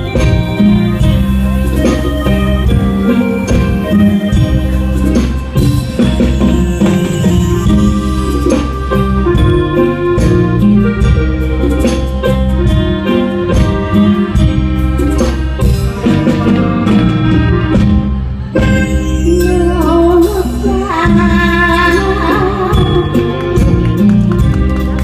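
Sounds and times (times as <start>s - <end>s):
steady drum beat: 0.0s - 19.1s, 21.0s - 25.0s
live band playing: 0.0s - 25.0s
woman singing: 19.1s - 23.8s.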